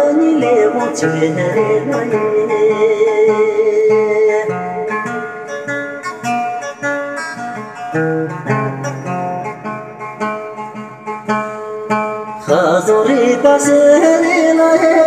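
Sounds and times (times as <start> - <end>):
acoustic guitar picking: 0.0 - 15.0.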